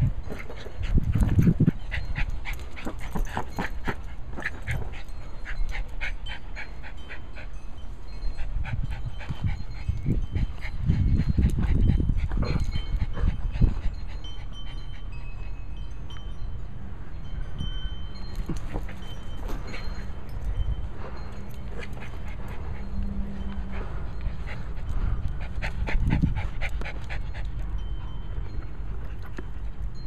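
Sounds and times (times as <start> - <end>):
dog panting rapidly: 0.2 - 7.6, 8.2 - 15.4, 20.9 - 27.8.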